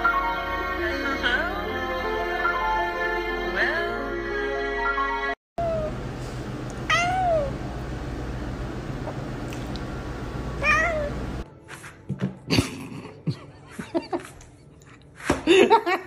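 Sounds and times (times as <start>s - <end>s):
cat meowing: 5.6s - 5.9s, 6.9s - 7.5s, 10.6s - 11.2s.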